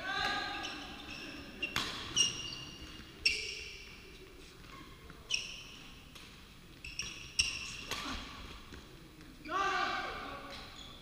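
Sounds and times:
racket hitting shuttlecock: 1.7s - 2.2s.

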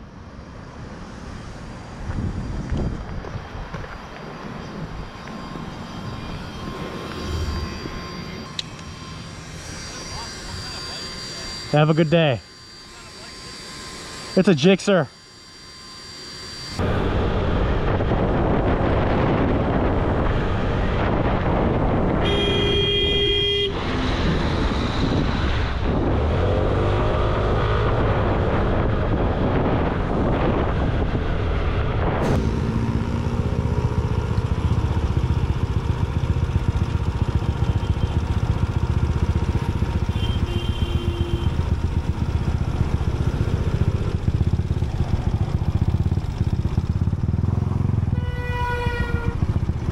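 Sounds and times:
motorcycle riding noise: 0.0s - 13.3s, 15.7s - 49.9s
vehicle horn honking: 22.2s - 23.8s, 37.5s - 38.4s, 40.0s - 41.8s, 48.1s - 49.5s.

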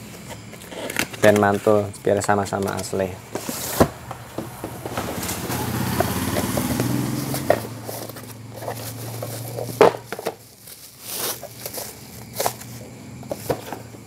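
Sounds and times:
steady engine drone: 3.2s - 10.8s
cardboard and plastic wrapping crinkling: 6.4s - 14.0s.

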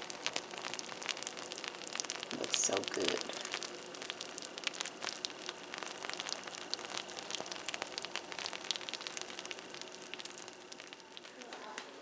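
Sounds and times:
cake sizzling and crackling in pan: 0.0s - 12.0s.

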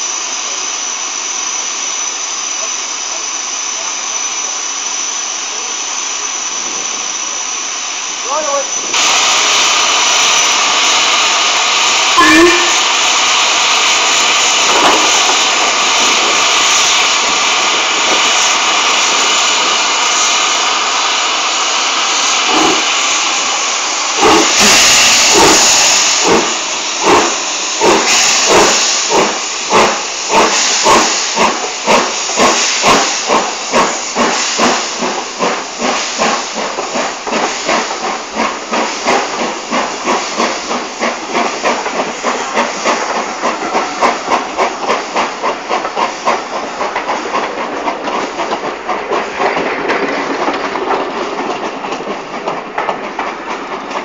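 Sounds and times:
steam hissing: 0.0s - 54.0s
steam locomotive exhaust chuffs: 0.0s - 54.0s.

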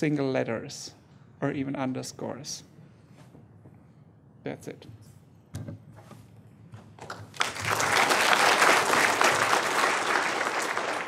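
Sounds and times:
audience applause: 7.1s - 11.0s.

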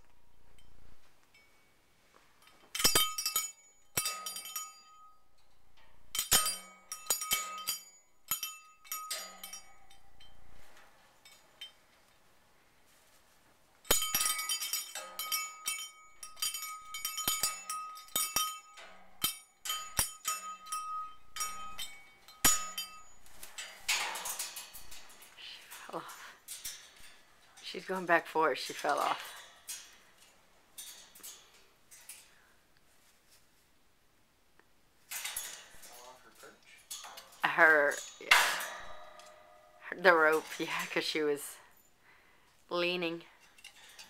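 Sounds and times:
small cow bell clanking: 0.0s - 1.7s, 2.4s - 11.8s, 13.8s - 30.2s, 35.1s - 41.9s.

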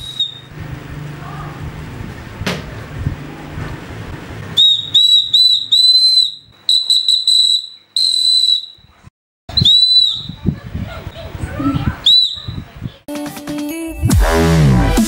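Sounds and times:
shrill whistle blasts: 0.0s - 0.5s, 4.6s - 10.5s, 12.0s - 12.6s.

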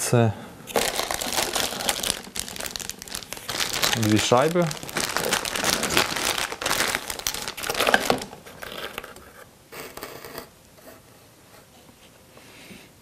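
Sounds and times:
plastic bag crinkling: 0.7s - 9.2s.

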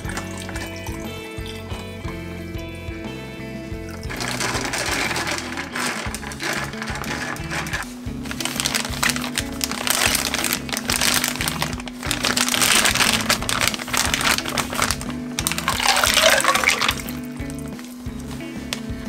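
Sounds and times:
liquid pouring into bag: 0.0s - 1.6s, 3.9s - 18.4s
background music with beat: 0.0s - 19.0s
plastic bag crinkling: 4.1s - 18.8s.

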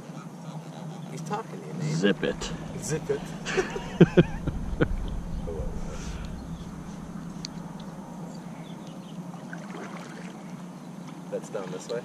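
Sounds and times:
boat motor hum: 1.9s - 10.3s.

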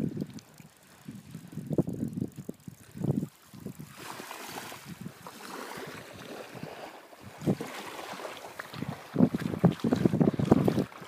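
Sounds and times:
wind buffeting microphone: 0.0s - 11.0s
small waves lapping: 2.7s - 11.0s.

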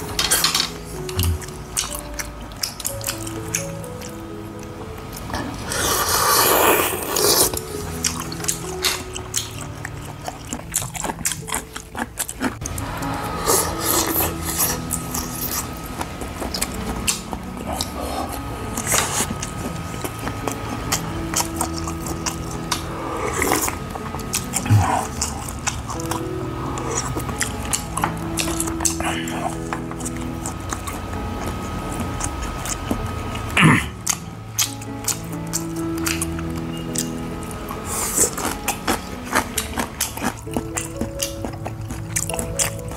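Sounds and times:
background music: 0.0s - 42.9s
wet chewing clicks: 1.0s - 4.2s, 5.7s - 12.8s, 13.4s - 42.9s
man slurping noodles: 5.7s - 7.5s.

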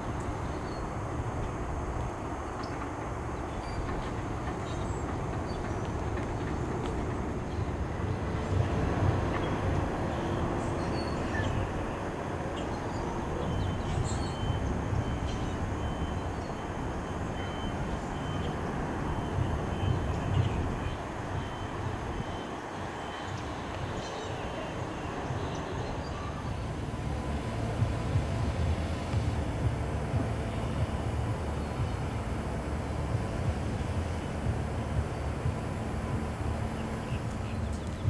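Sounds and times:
low pulsing rumble: 25.2s - 38.0s.

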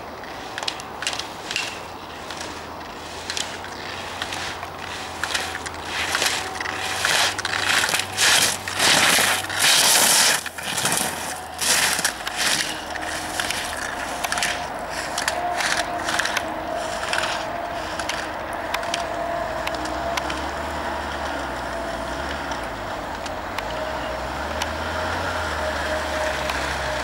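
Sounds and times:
gate poles clacking: 0.0s - 20.4s
skis scraping over hard snow: 0.0s - 22.7s.

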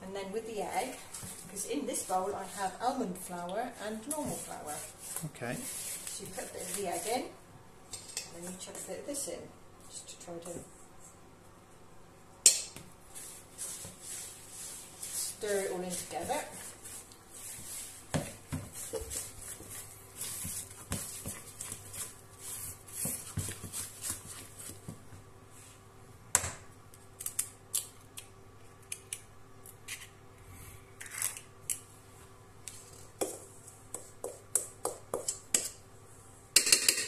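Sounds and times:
spatula scraping batter in bowl: 13.2s - 24.9s.

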